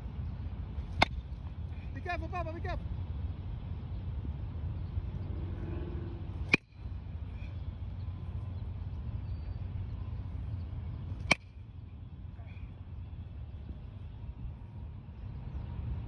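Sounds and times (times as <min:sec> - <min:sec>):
steady low background noise: 0:00.0 - 0:16.0
bat hitting baseball: 0:00.9 - 0:01.2, 0:11.2 - 0:11.5.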